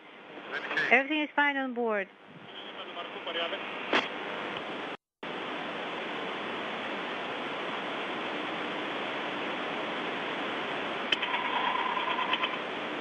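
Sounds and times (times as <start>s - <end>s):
radio static hiss: 0.0s - 1.2s, 2.4s - 4.5s.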